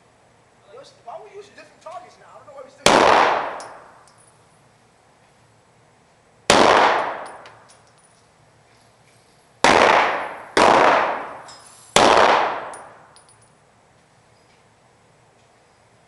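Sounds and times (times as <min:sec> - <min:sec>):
pistol shots echoing indoors: 0:09.6 - 0:11.4, 0:12.0 - 0:12.9.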